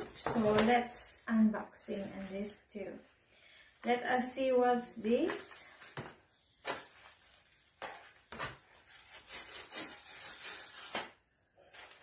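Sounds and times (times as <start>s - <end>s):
cardboard being torn open: 8.8s - 11.2s.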